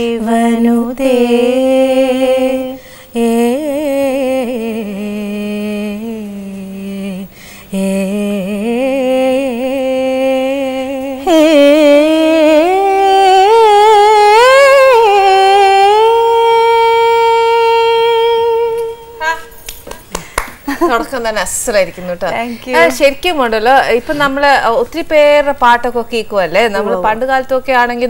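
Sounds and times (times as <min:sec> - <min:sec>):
women singing unaccompanied: 0:00.0 - 0:19.6.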